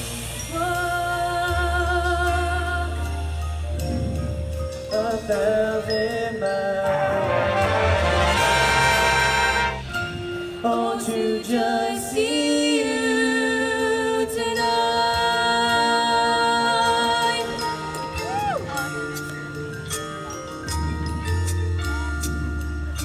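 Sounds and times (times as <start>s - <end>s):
sustained brass and wind chords: 6.8s - 11.8s
marching band playing: 6.9s - 10.5s.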